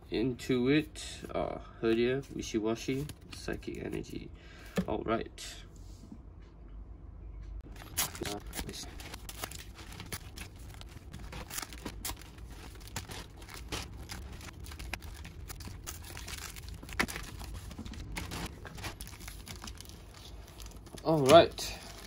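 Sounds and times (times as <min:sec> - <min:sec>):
foil wrappers crinkling: 0:07.6 - 0:22.0.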